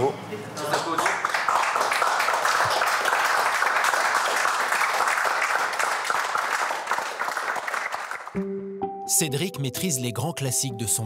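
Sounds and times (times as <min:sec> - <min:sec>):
people applauding: 0:00.6 - 0:08.4.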